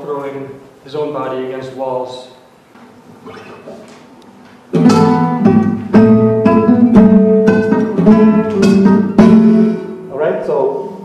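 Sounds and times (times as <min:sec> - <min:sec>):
plucked guitar notes: 0:04.7 - 0:10.2.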